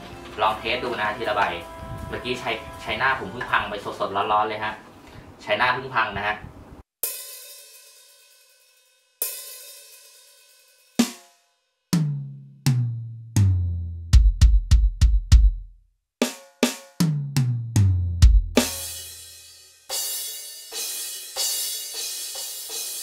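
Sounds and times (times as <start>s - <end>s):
electronic cymbal crash: 7.0s - 11.4s, 18.6s - 23.0s
very low drum hits: 17.0s - 19.0s.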